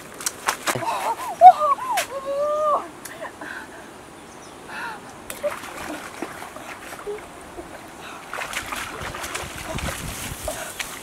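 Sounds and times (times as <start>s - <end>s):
hands splashing in muddy water: 8.2s - 11.0s.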